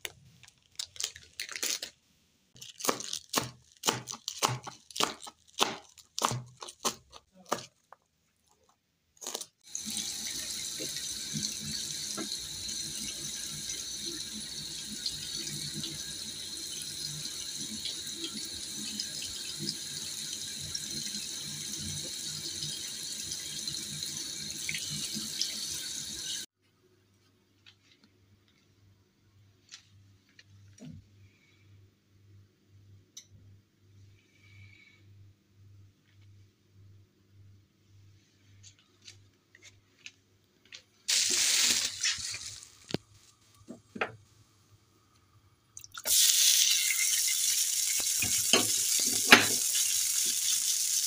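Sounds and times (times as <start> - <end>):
tap water running into sink: 9.7 - 26.4, 45.8 - 51.0.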